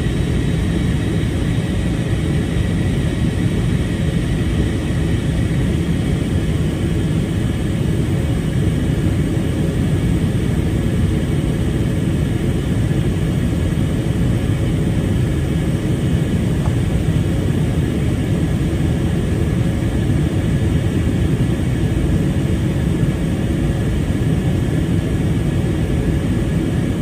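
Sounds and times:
jet engines rumbling in cabin: 0.0 - 27.0.

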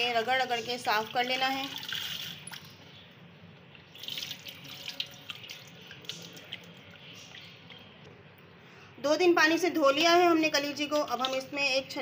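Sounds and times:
tap water running: 0.0 - 2.7, 3.9 - 6.9, 10.6 - 11.8.

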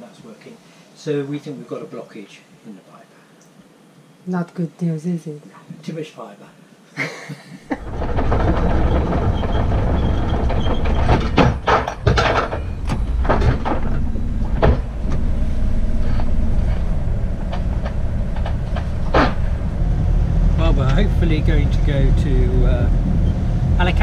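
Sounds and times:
sharp knocks and clanks: 7.8 - 19.8
boat engine rumbling: 7.8 - 24.0.

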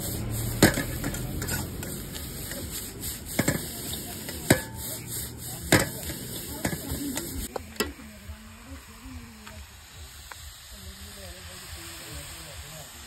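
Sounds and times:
metal ladle scraping a wok: 0.0 - 8.0
gas burner hissing: 0.0 - 13.0
ladle clanking on wok: 0.6 - 8.0.

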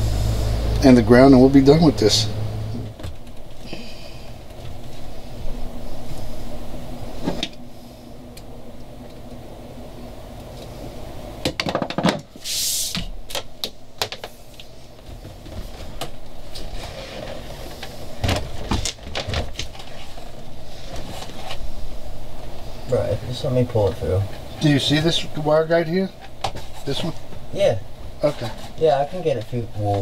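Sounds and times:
short hiss: 12.4 - 13.1.

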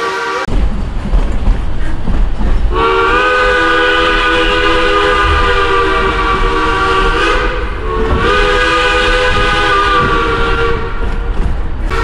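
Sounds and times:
low rumble of moving train: 0.0 - 12.0
steam locomotive chime whistle: 2.8 - 11.0.

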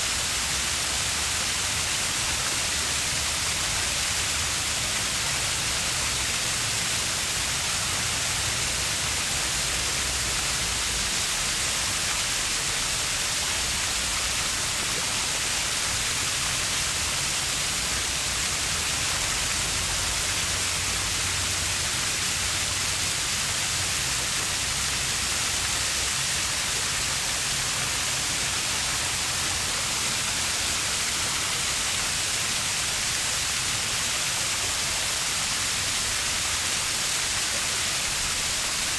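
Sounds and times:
stream water flowing: 0.0 - 38.9.

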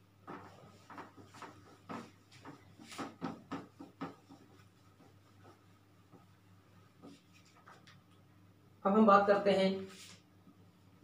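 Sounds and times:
duster wiping whiteboard: 0.1 - 7.9, 9.8 - 10.2.

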